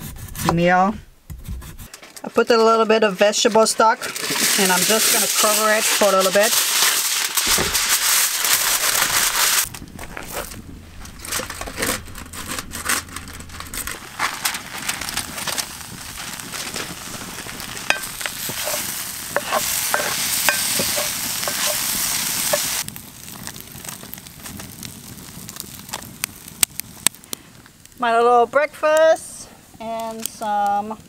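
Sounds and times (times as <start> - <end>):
fire crackling: 1.1 - 31.0
wooden spatula scraping a pan: 1.8 - 22.8
vegetables sizzling in a skillet: 3.3 - 9.7, 14.0 - 27.0.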